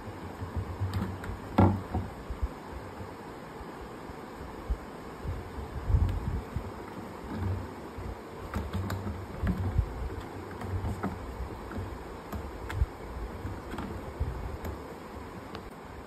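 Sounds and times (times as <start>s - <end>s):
light clicks and scratches: 8.4s - 15.7s.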